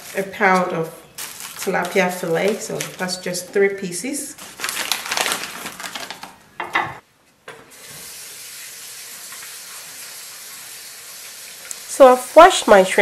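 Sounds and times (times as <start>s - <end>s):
hands rustling and crinkling: 0.0s - 3.2s, 4.4s - 6.4s.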